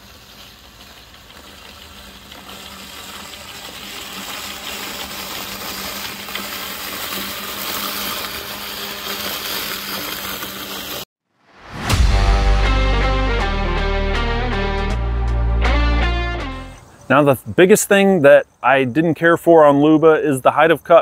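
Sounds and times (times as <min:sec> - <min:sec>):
robotic lawn mower humming: 0:00.0 - 0:11.0.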